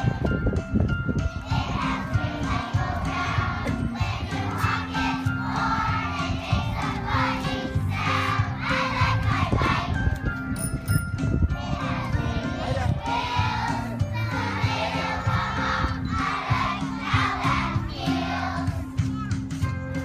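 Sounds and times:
instrumental accompaniment: 0.0s - 20.0s
children's choir singing: 1.4s - 10.0s, 11.5s - 18.9s.

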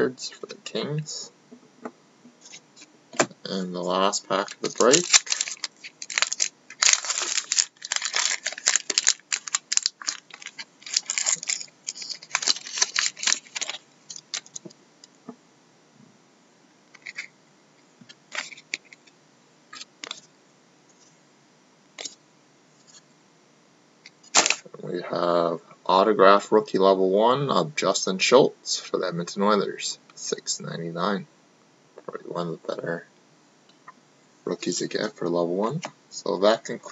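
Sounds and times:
foil wrapper crinkling: 4.3s - 14.6s, 24.3s - 24.6s.

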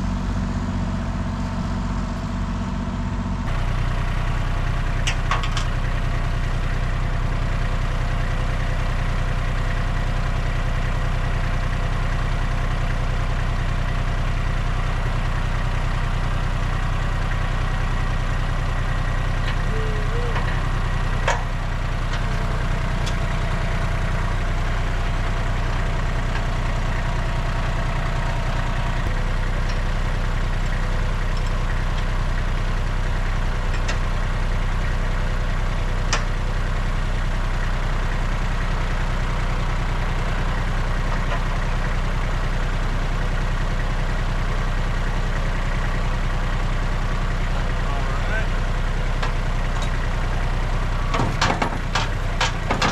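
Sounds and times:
tractor engine idling: 0.0s - 52.9s
sharp knocks: 51.1s - 52.9s.

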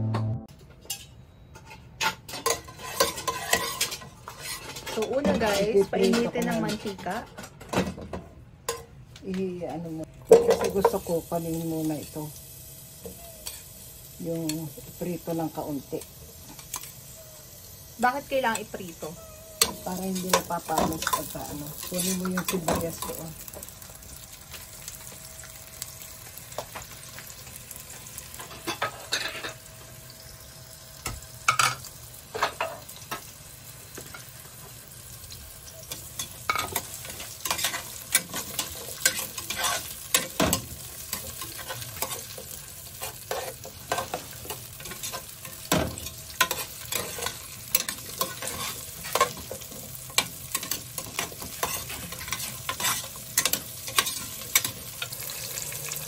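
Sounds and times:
spatula scraping and knocking pot: 1.6s - 7.3s
vegetables sizzling in oil: 2.2s - 7.2s, 8.7s - 56.0s.

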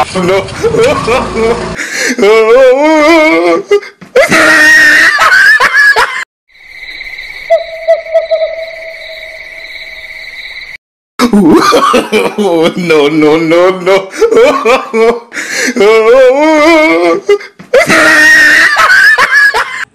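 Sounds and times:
loud screaming: 4.3s - 5.5s, 17.8s - 19.6s
high-pitched eerie tone: 6.5s - 10.8s
wavering wailing voice: 7.5s - 9.5s.

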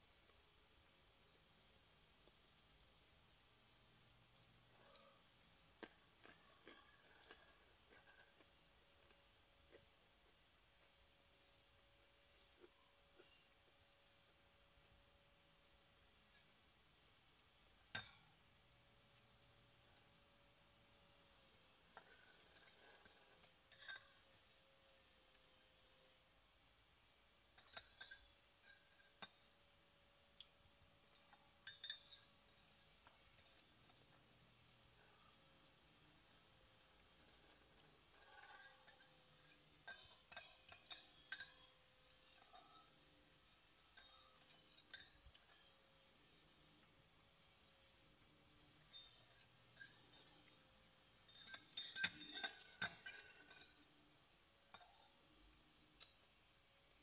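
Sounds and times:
fork clinking on ceramic bowl: 31.1s - 33.7s, 51.3s - 53.8s.

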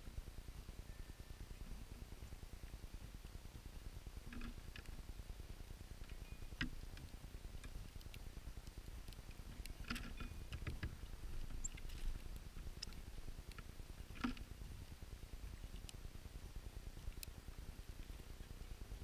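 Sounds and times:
faint low rumble: 0.0s - 19.0s
bird clicks and ticks: 4.2s - 5.0s, 6.0s - 14.5s.

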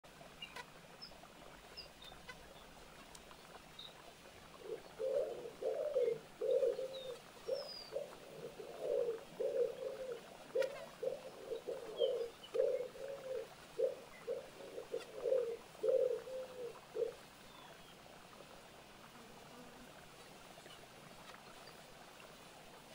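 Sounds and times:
songbirds chirping faintly: 0.1s - 22.9s
pigeon cooing: 4.6s - 17.2s.

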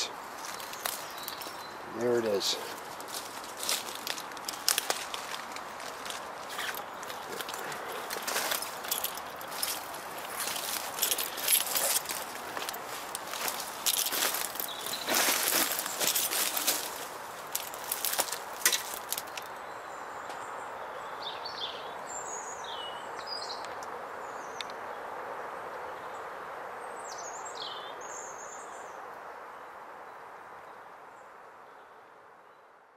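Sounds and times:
crackling in dry brambles: 0.0s - 19.6s
steady outdoor hiss: 0.0s - 32.9s.

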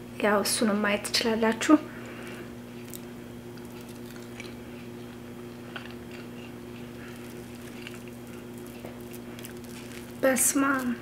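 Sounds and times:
low electrical hum: 0.0s - 11.0s
person chewing: 2.7s - 11.0s.

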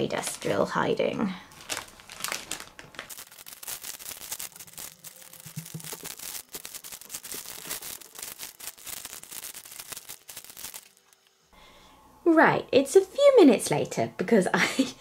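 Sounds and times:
plastic bags crinkling: 1.5s - 11.4s.

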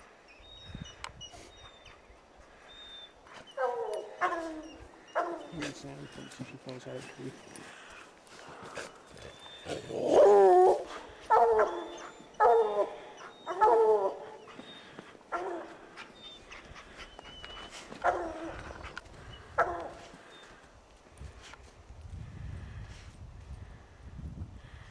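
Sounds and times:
hound baying: 2.7s - 20.6s.

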